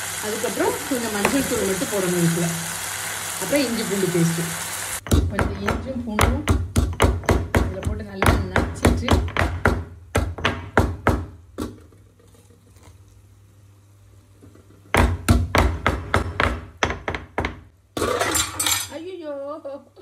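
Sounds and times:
pestle pounding in stone mortar: 5.0s - 11.8s, 14.9s - 17.7s.

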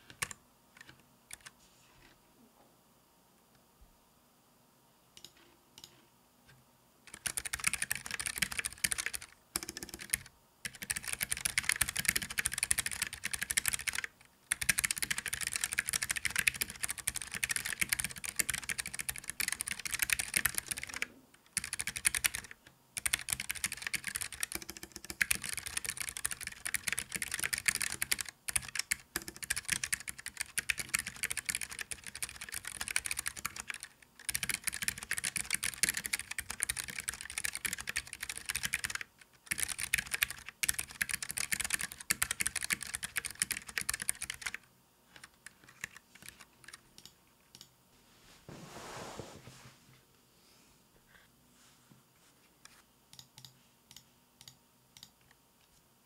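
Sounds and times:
fast typing on clicky keyboard: 0.0s - 1.5s, 7.1s - 47.7s.

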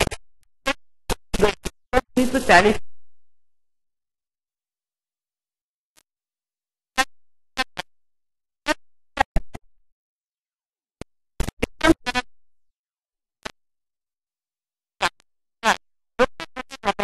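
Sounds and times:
distorted garbled sound bursts: 1.4s - 2.8s.

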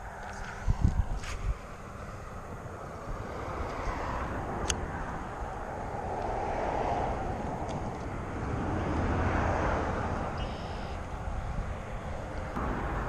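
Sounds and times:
highway traffic rumble: 0.0s - 13.0s.

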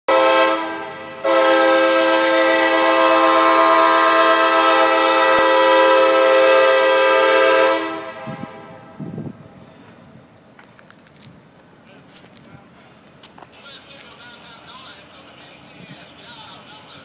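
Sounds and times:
locomotive air horn: 0.1s - 9.0s.

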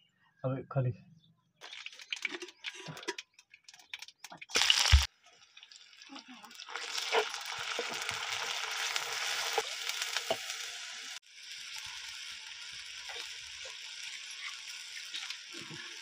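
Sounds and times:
hot oil sizzling: 3.8s - 16.0s.

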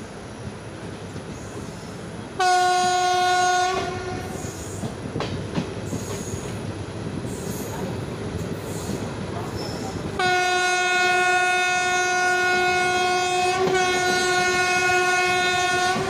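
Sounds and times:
train rumbling on rails: 0.0s - 16.0s
locomotive horn blast: 2.4s - 4.5s, 10.2s - 16.0s
rail-joint clicks: 3.7s - 10.2s.

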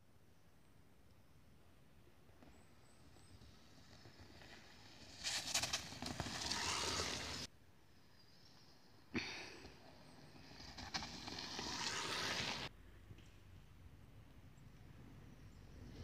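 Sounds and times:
bike tyres rushing over soil: 2.6s - 7.5s, 9.6s - 12.7s.

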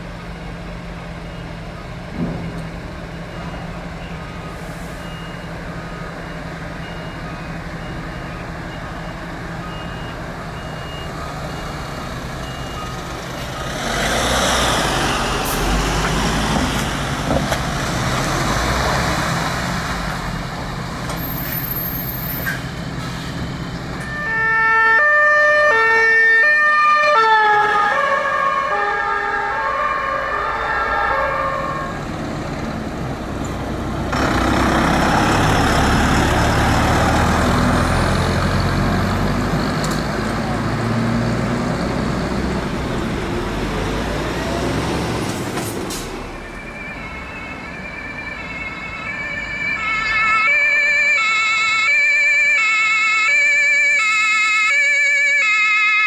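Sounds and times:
ambulance driving past: 3.1s - 56.0s
two-tone siren: 24.0s - 32.0s, 46.4s - 56.0s
diesel engine idling: 31.8s - 44.7s.

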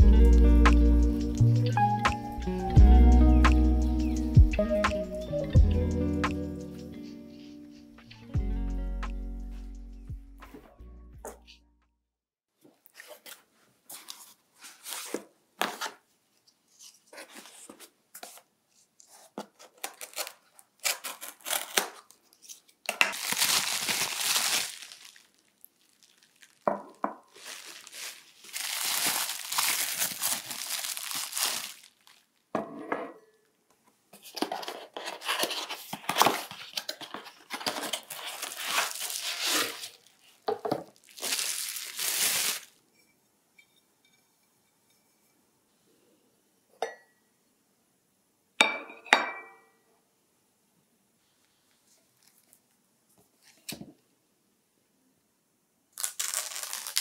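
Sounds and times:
wrapping paper crinkling: 16.7s - 32.4s, 34.2s - 42.8s, 52.2s - 52.6s, 56.0s - 57.0s
packaging being torn open: 19.6s - 26.7s, 27.3s - 32.3s, 34.4s - 42.8s, 56.0s - 57.0s.

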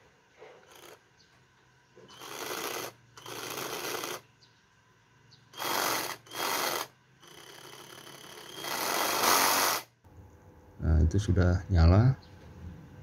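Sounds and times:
reciprocating saw running: 0.6s - 1.0s, 2.0s - 4.2s, 5.6s - 9.9s.

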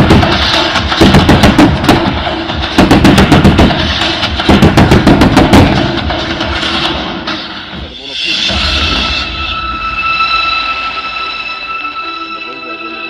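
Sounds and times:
fireworks shots in rapid volleys: 0.0s - 9.1s
show music: 0.0s - 13.0s.

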